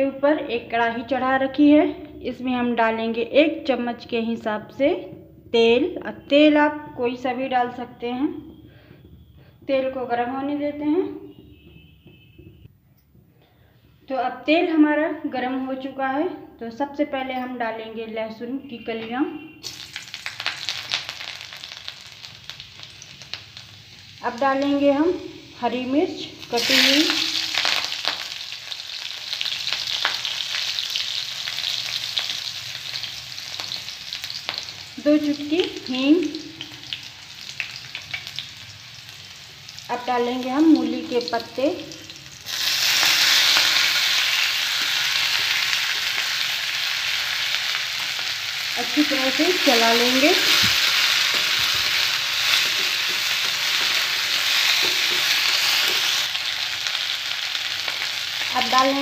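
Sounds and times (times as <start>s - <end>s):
oil popping and crackling: 19.6s - 24.2s, 26.4s - 35.0s, 36.7s - 39.8s, 42.0s - 59.0s
food sizzling in hot oil: 19.6s - 59.0s
metal spatula stirring: 50.6s - 56.2s.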